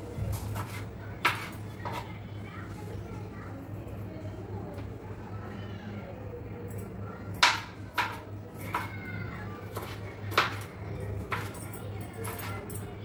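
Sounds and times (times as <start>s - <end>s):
knife chopping on cutting board: 9.7s - 10.6s.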